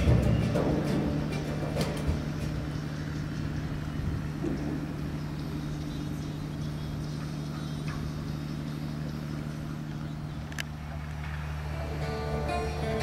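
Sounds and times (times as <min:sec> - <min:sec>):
steady low hum: 0:00.0 - 0:13.0
music: 0:11.7 - 0:13.0.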